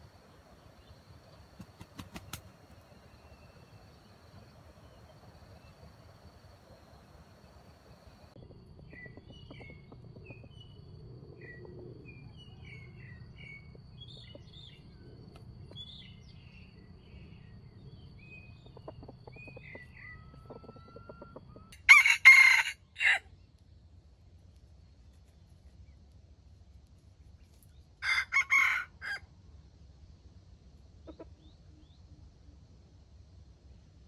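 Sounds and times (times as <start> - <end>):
faint small bird chirps: 0.1 - 21.7
rooster crowing: 20.1 - 23.3, 28.0 - 29.3.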